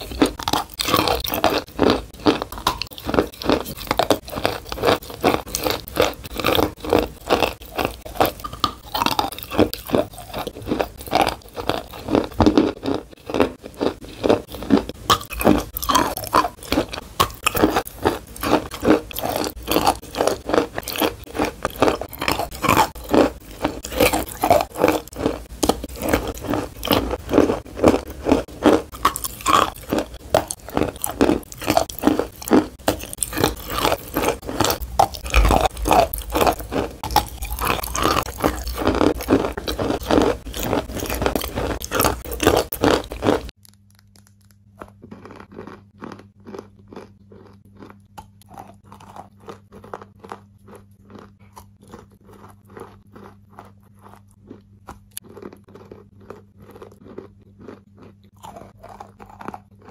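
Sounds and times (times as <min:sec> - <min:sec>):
chewing: 0:00.0 - 0:59.9.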